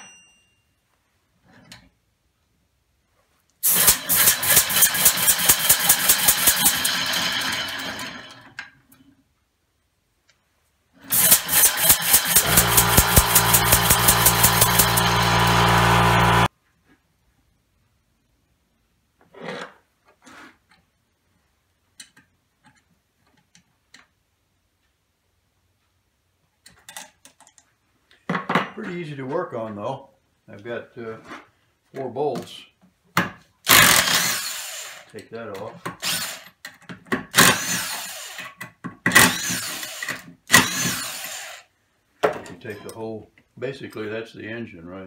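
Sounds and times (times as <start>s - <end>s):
metal tool scraping steel: 11.1s - 16.5s.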